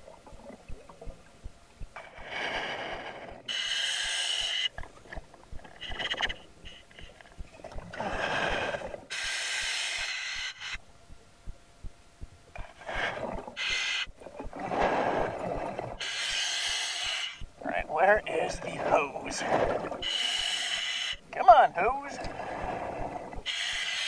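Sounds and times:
regulator inhale hiss: 0:08.0 - 0:10.8, 0:12.6 - 0:14.1, 0:16.0 - 0:17.4, 0:20.0 - 0:21.2, 0:23.5 - 0:24.0.

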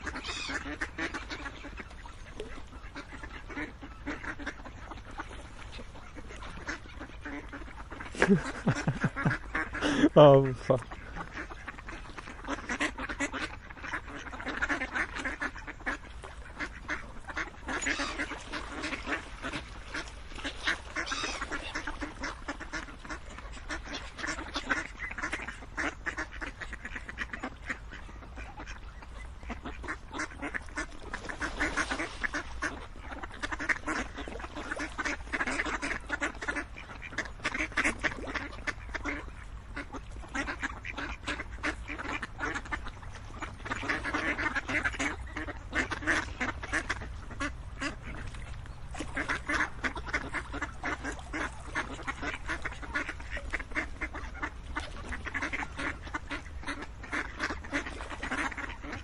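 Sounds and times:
ducks quacking: 0:00.0 - 0:59.0.

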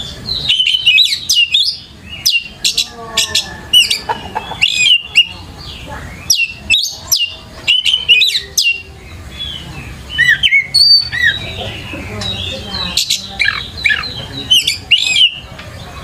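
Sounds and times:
bird singing whistled notes: 0:00.0 - 0:04.0, 0:04.6 - 0:15.5.

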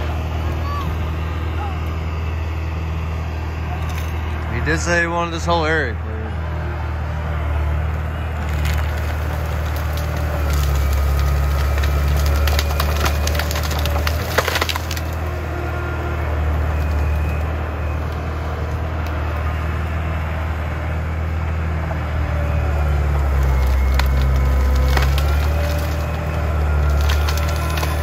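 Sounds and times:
dozer diesel engine running: 0:00.0 - 0:28.0
wood cracking and splintering: 0:08.3 - 0:15.5, 0:16.6 - 0:17.5, 0:22.8 - 0:28.0.

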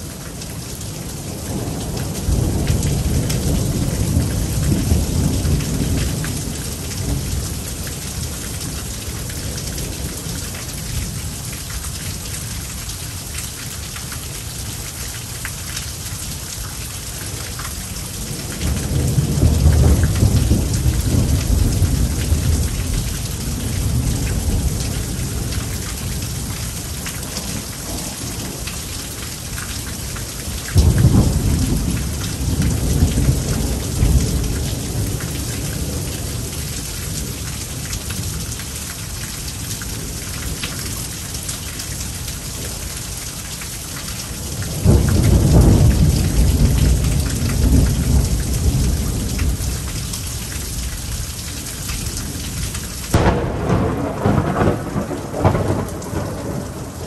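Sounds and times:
heavy rain falling: 0:00.0 - 0:57.0
thunder rumbling: 0:18.2 - 0:26.6, 0:30.8 - 0:35.2, 0:44.8 - 0:50.0, 0:53.1 - 0:57.0.

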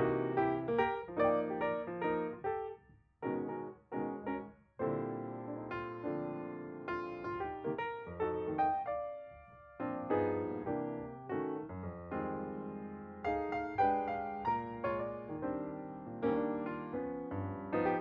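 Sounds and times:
piano notes and chords: 0:00.0 - 0:18.0.

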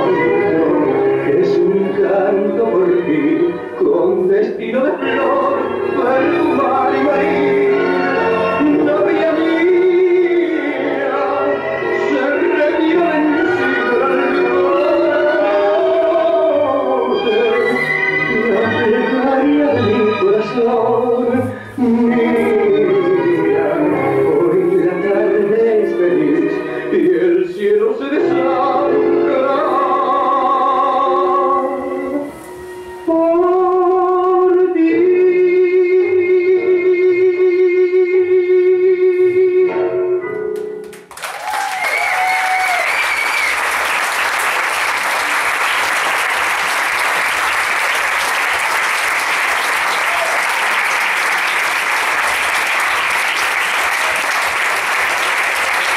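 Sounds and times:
tango music recording: 0:00.0 - 0:55.9
audience applause: 0:40.9 - 0:55.9.

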